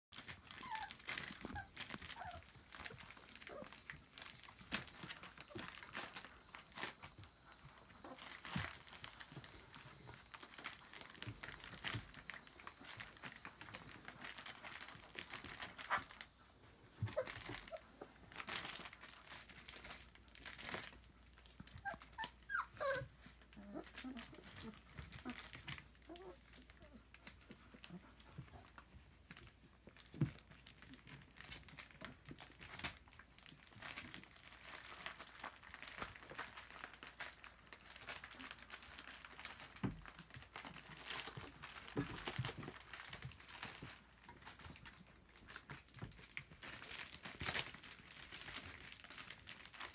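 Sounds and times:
bubble wrap crinkling and snapping: 0:00.1 - 0:49.9
puppy whines: 0:00.2 - 0:29.0.

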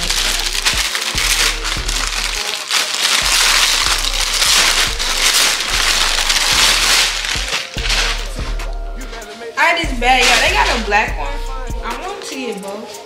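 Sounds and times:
plastic garment bag crinkling: 0:00.0 - 0:09.6, 0:10.2 - 0:11.0
music with low beat: 0:00.0 - 0:13.0.

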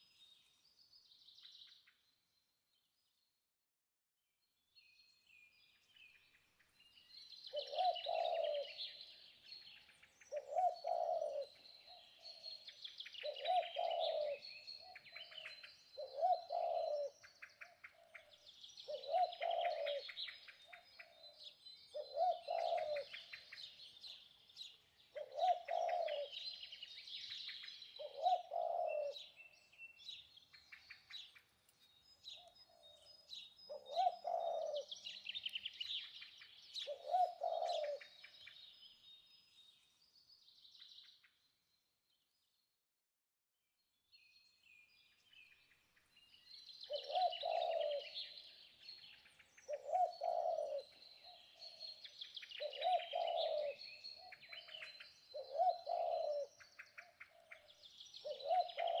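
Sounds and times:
small birds chirping: 0:04.7 - 0:42.8, 0:43.9 - 0:59.0
low cooing call: 0:07.6 - 0:09.1, 0:10.3 - 0:12.6, 0:13.2 - 0:15.4, 0:16.0 - 0:17.2, 0:18.9 - 0:20.3, 0:21.0 - 0:23.8, 0:25.2 - 0:26.7, 0:28.0 - 0:29.5, 0:33.7 - 0:35.4, 0:36.8 - 0:38.2, 0:46.9 - 0:48.5, 0:49.7 - 0:56.6, 0:58.2 - 0:59.0.

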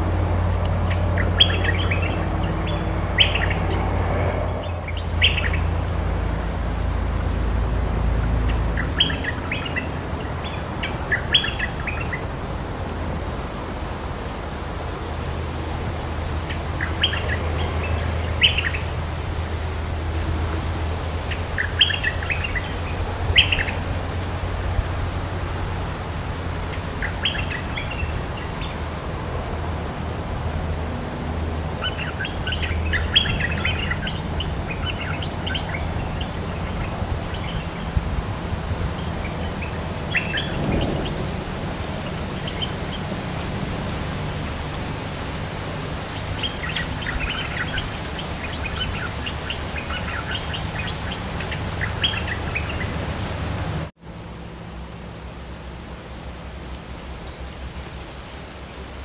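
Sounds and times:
low rumble: 0:00.0 - 0:08.7, 0:37.9 - 0:43.6.

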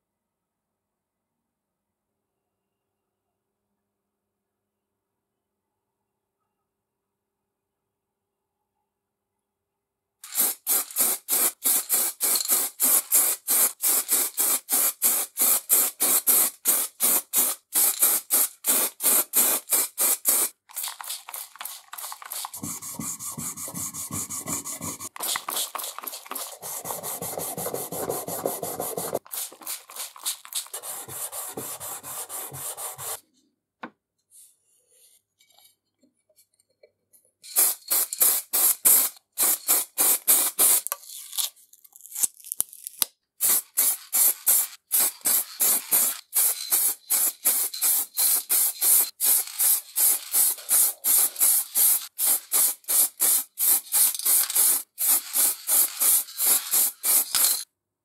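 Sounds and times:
spray gun hissing: 0:10.2 - 0:33.2, 0:37.5 - 0:40.8, 0:43.4 - 0:57.6.

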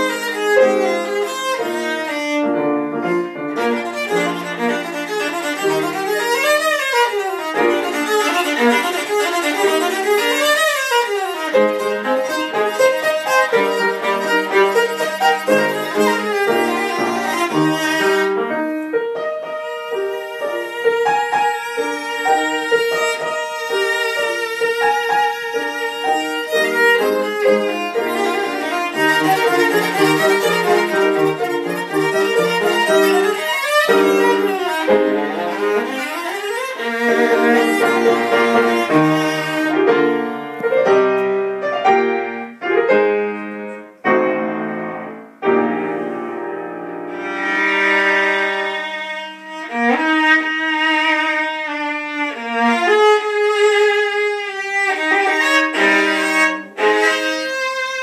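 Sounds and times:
violin playing: 0:00.0 - 0:44.0, 0:45.4 - 0:58.0.

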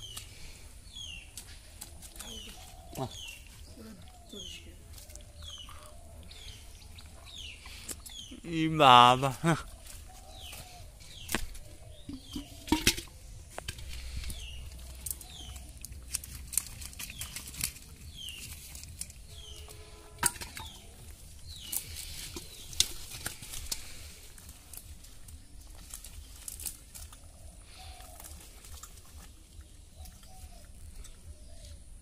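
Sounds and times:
birds chirping: 0:00.0 - 0:32.0
fish flapping and splashing: 0:14.7 - 0:19.2.

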